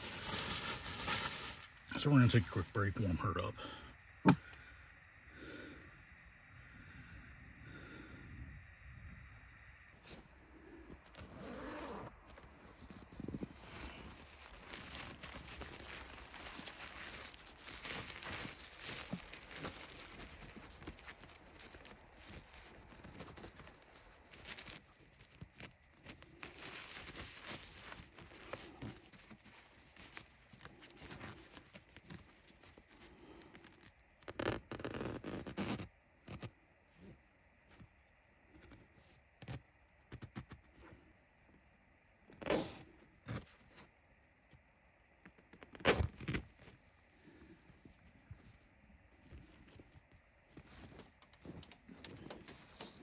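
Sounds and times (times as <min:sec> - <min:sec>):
tent fabric rustling: 0:00.0 - 0:03.4, 0:11.1 - 0:35.9.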